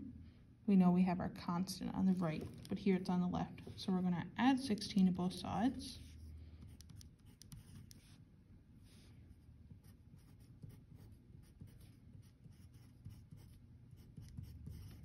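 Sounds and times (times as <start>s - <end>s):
pen scratching on paper: 6.0s - 8.2s, 9.7s - 15.0s.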